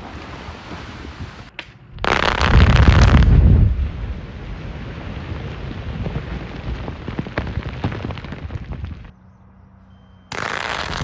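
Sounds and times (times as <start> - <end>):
rock debris rumbling and cracking: 2.2 - 9.1.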